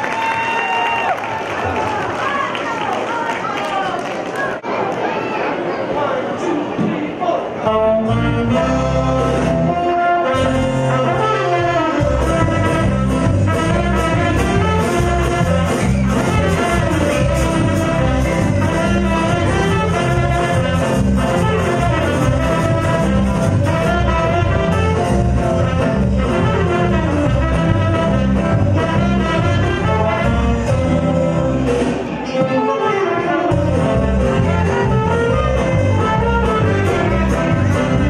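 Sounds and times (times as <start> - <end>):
guitar: 7.6 - 38.0
saxophones playing melody: 7.7 - 31.7, 32.5 - 38.0
drums: 8.2 - 38.0.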